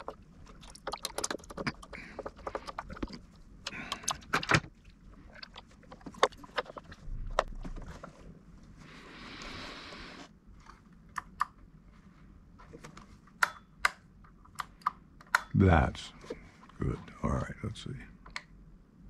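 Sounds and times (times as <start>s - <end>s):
screwdriver clicks and taps: 13.4s - 15.5s.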